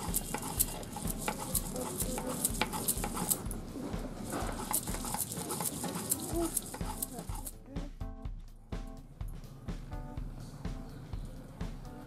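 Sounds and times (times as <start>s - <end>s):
stone roller grinding on slab: 0.0s - 7.5s.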